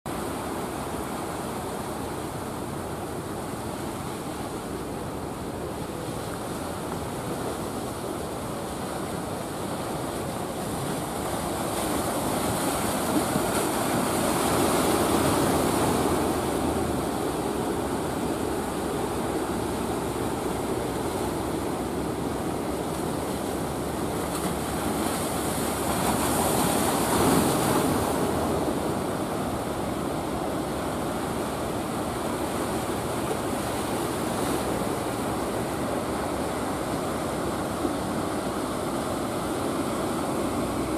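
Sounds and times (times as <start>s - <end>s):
sea surf breaking: 0.1s - 40.9s.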